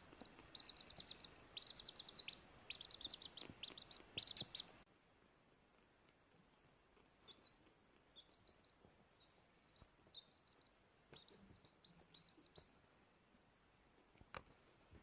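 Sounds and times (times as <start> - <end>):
chick peeping: 0.0 - 4.8, 7.0 - 12.9.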